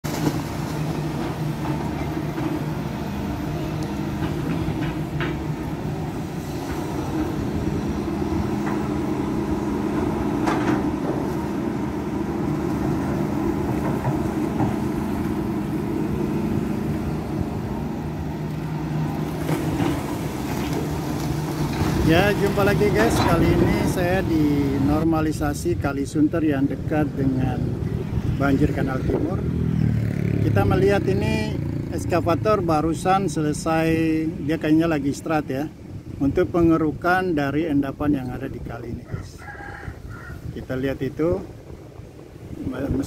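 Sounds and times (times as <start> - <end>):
excavator diesel engine running: 0.1 - 25.6.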